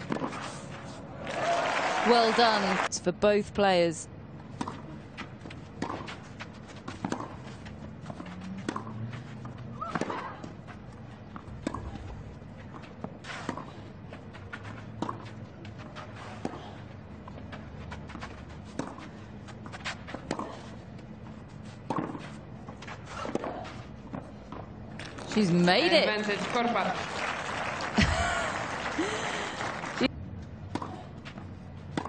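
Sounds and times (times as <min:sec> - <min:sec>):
racket striking tennis ball: 0:05.7 - 0:07.5, 0:08.1 - 0:09.0, 0:09.7 - 0:10.6, 0:21.8 - 0:22.4.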